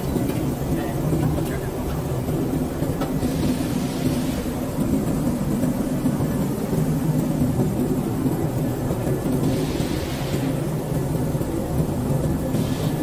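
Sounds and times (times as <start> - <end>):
machinery humming and rumbling: 0.0 - 13.0.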